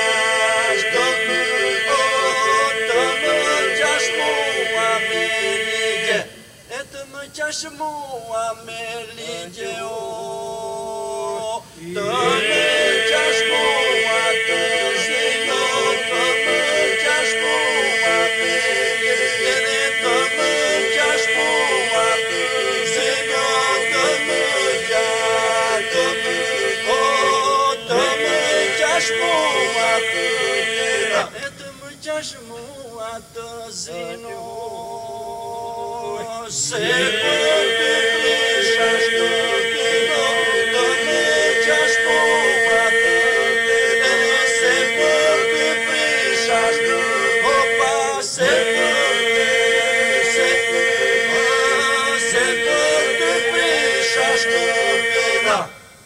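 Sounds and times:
men singing a drone: 0.0 - 56.0
lead male voice singing: 35.8 - 55.7.

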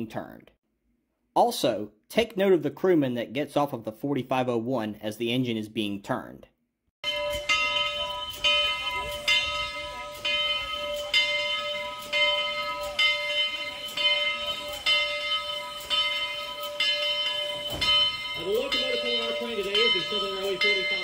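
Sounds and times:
locomotive bell ringing: 7.0 - 21.0.

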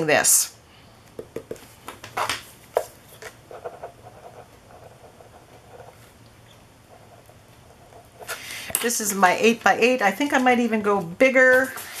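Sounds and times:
paper rustling and tapping: 1.2 - 3.4
pen writing on paper: 3.5 - 6.1.

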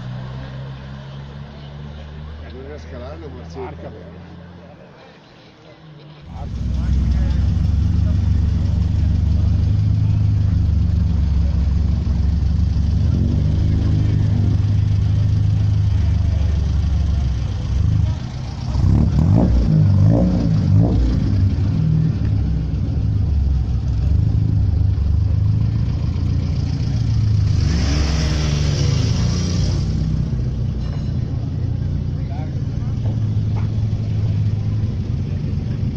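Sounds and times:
car engines idling: 0.0 - 35.9
engine revving in quick blips: 27.0 - 30.4.

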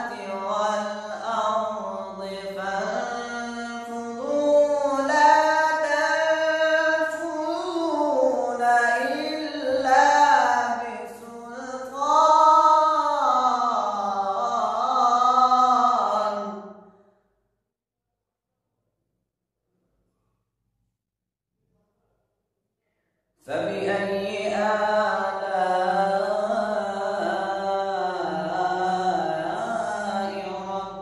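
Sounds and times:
solo voice chanting: 0.0 - 16.8, 23.4 - 31.0.

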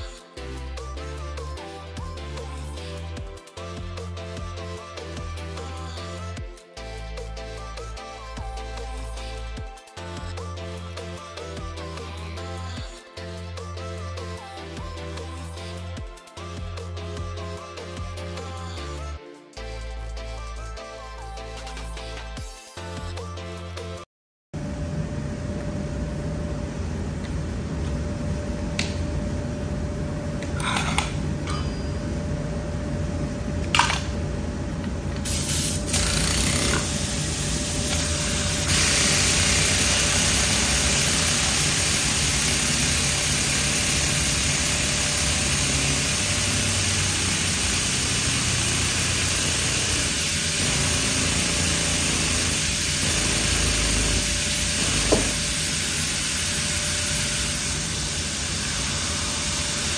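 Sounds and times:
low shop rumble: 24.6 - 59.9
compressed air hissing: 35.2 - 59.9.

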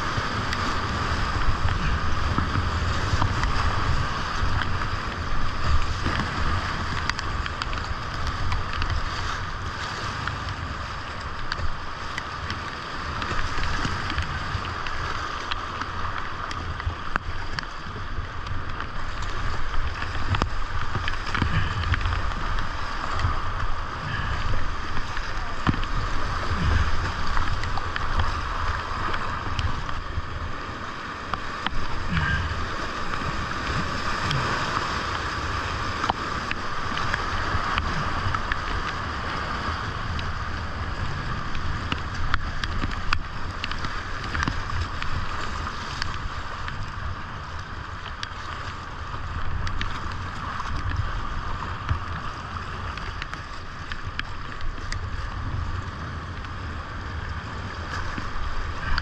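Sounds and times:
paddle strokes in water: 0.0 - 59.0
rushing whitewater: 0.0 - 59.0
low rumble: 14.2 - 45.0.

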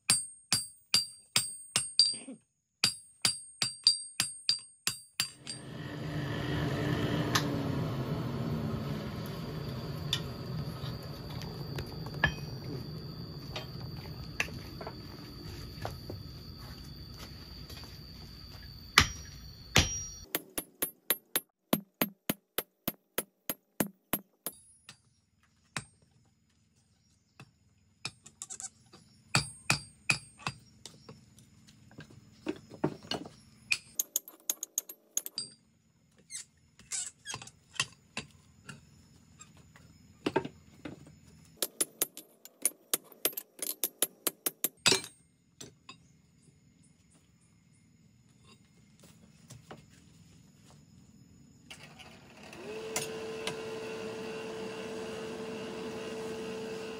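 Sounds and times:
hammer striking metal on anvil: 2.8 - 6.0, 12.2 - 12.6, 19.0 - 24.8.

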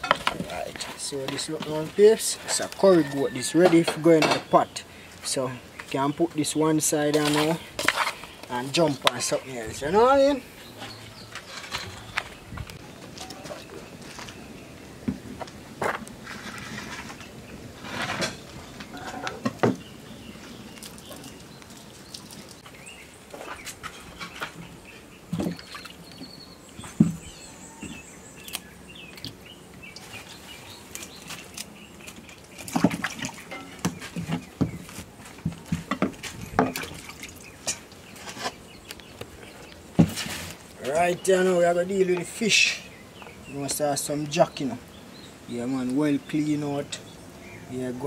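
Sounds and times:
bowls and ingredients handled: 0.0 - 14.4, 26.6 - 41.3.

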